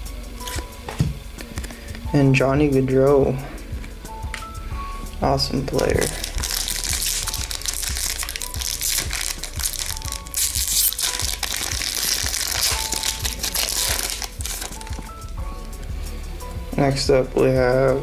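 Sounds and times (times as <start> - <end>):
quiet background music: 0.0 - 18.0
foil wrapper crinkling: 5.8 - 15.2.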